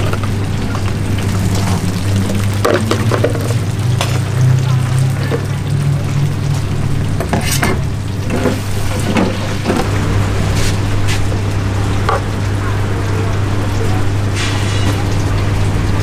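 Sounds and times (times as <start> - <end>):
egg sizzling in a frying pan: 0.0 - 12.5.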